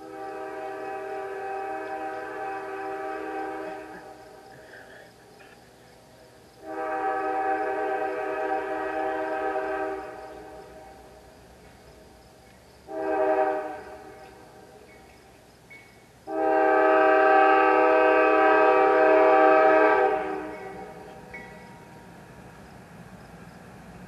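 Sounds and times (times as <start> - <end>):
locomotive air horn blasts: 0.0 - 4.2, 6.6 - 11.0, 12.9 - 14.4, 16.3 - 21.3.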